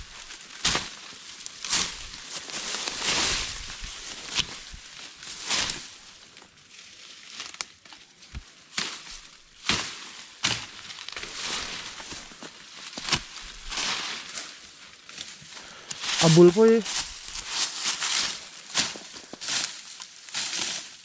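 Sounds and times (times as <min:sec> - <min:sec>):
plant material rustling and crunching: 0:00.0 - 0:21.0
sharp crackles: 0:15.1 - 0:20.6.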